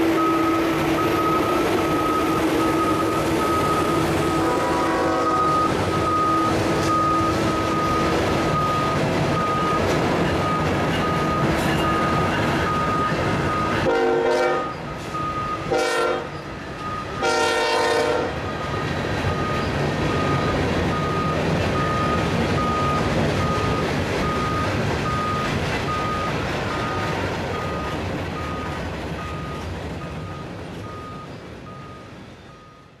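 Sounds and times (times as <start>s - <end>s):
locomotive horn: 0.0s - 8.1s, 13.6s - 16.4s, 17.0s - 18.4s
train wheels rumbling on rails: 0.0s - 33.0s.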